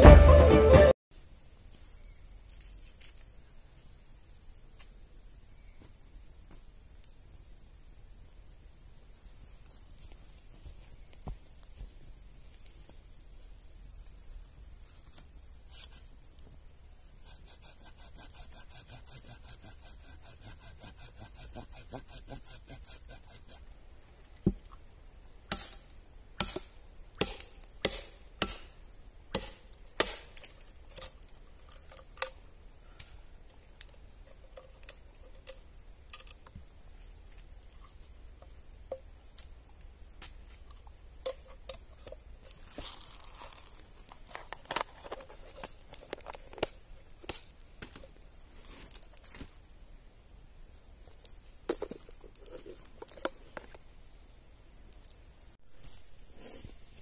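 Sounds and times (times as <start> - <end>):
rustle: 1.1 - 57.0
machete chopping bamboo: 25.5 - 28.7, 29.3 - 30.4.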